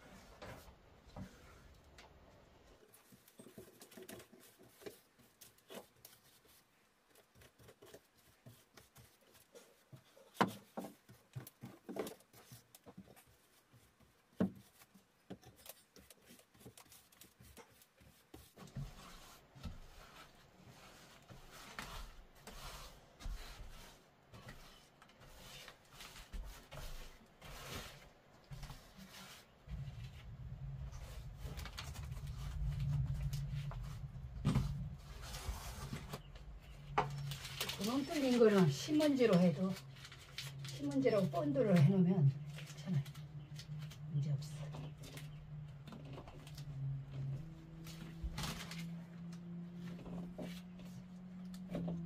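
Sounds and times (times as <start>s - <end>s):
paintbrush dabbing on wood: 2.9s - 30.0s.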